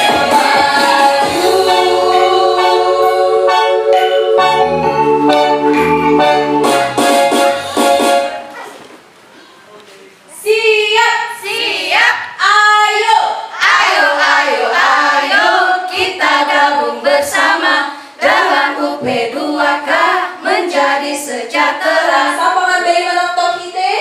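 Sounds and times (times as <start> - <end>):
women singing and chanting: 0.0 - 3.4, 10.4 - 24.0.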